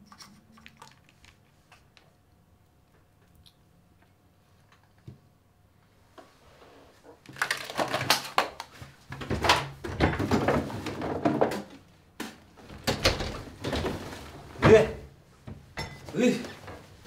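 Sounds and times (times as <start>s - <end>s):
cupboard doors and drawers clattering: 9.1s - 11.8s, 12.6s - 17.0s.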